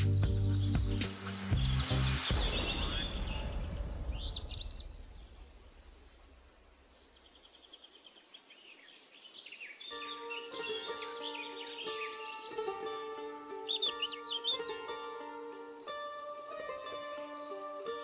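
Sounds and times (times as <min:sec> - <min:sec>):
music: 0:00.0 - 0:03.8, 0:09.9 - 0:18.0
small birds chirping: 0:00.0 - 0:18.0
low rushing noise: 0:01.6 - 0:07.3.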